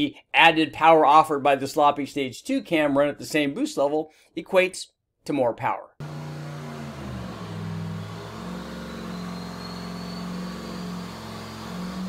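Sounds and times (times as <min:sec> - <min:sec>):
engine running at low speed: 0:06.0 - 0:12.0.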